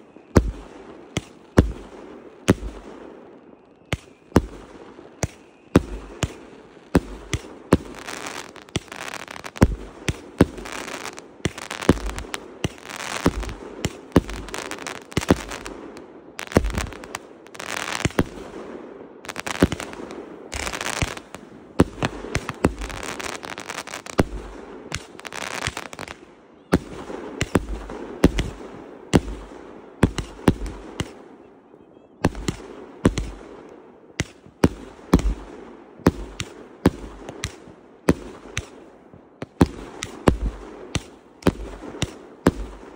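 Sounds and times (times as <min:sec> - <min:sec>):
fireworks crackling: 0:00.0 - 0:31.4, 0:32.2 - 0:42.9
fireworks sharp bangs: 0:00.0 - 0:31.5, 0:32.2 - 0:42.9.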